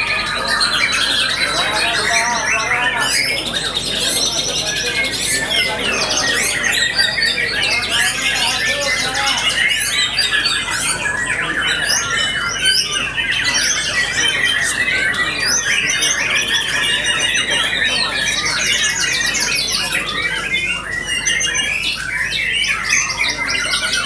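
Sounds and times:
birds singing rapid whistles: 0:00.0 - 0:24.0.

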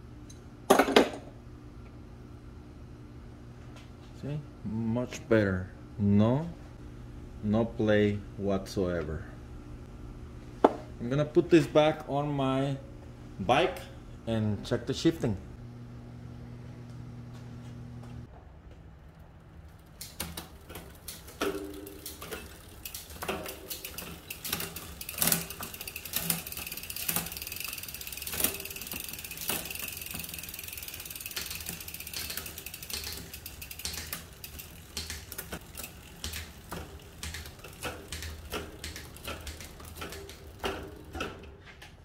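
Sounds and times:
bike chain whirring and rattling: 0:18.6 - 0:41.6.

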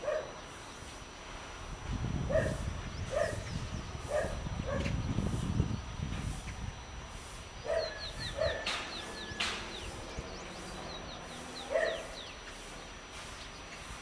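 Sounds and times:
dog barking: 0:00.0 - 0:00.3, 0:02.3 - 0:03.4, 0:04.1 - 0:04.9, 0:07.7 - 0:08.7, 0:11.7 - 0:12.2
bird chirping: 0:07.6 - 0:13.9.

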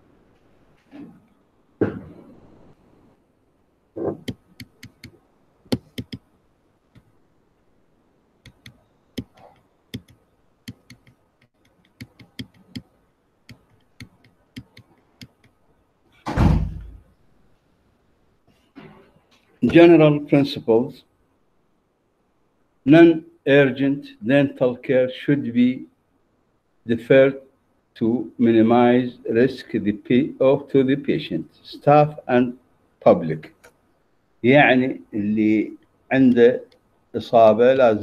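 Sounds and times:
dull thump: 0:01.8 - 0:02.3, 0:16.2 - 0:17.0.

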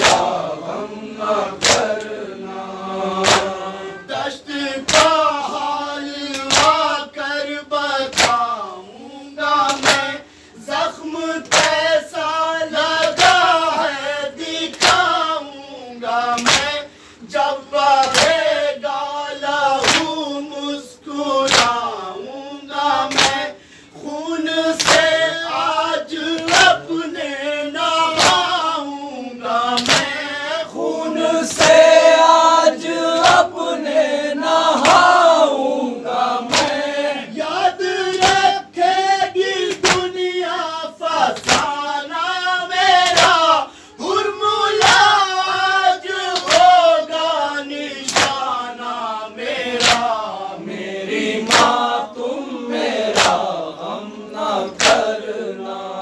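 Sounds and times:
hands slapping chests: 0:00.0 - 0:00.4, 0:01.6 - 0:02.2, 0:03.2 - 0:03.6, 0:04.8 - 0:05.2, 0:06.3 - 0:06.8, 0:08.1 - 0:08.5, 0:09.6 - 0:10.2, 0:11.4 - 0:11.9, 0:14.6 - 0:15.2, 0:16.3 - 0:16.8, 0:18.0 - 0:18.5, 0:19.8 - 0:20.2, 0:21.4 - 0:21.9, 0:23.0 - 0:23.5, 0:24.8 - 0:25.2, 0:26.4 - 0:26.8, 0:28.1 - 0:28.6, 0:29.8 - 0:30.2, 0:31.5 - 0:31.9, 0:33.2 - 0:33.5, 0:34.8 - 0:35.2, 0:36.4 - 0:36.9, 0:38.1 - 0:38.6, 0:39.6 - 0:40.2, 0:41.3 - 0:41.8, 0:43.0 - 0:43.5, 0:44.8 - 0:45.2, 0:46.3 - 0:46.8, 0:48.0 - 0:48.6, 0:49.7 - 0:50.2, 0:51.4 - 0:51.9, 0:53.0 - 0:53.6, 0:54.7 - 0:55.2
men singing a lament: 0:00.0 - 0:56.0.

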